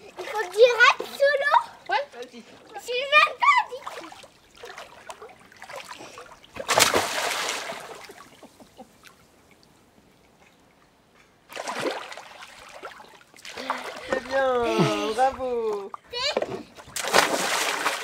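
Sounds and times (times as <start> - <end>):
water splashing and sloshing: 0.0 - 18.0
child splashing into water: 3.7 - 8.3, 11.5 - 15.2, 16.8 - 18.0.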